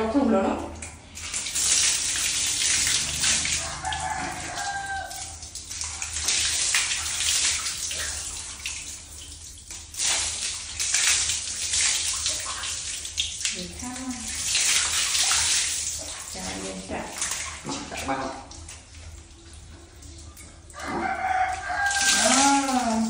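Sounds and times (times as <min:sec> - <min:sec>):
water splashing on tiled floor: 0:00.0 - 0:23.0
shower spray hissing: 0:01.4 - 0:04.2.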